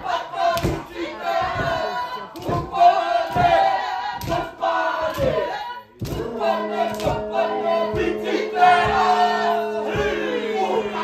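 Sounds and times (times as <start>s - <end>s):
group chanting and shouting: 0.0s - 11.0s
rhythmic slaps and stamps: 0.0s - 11.0s
steady held note: 6.2s - 11.0s.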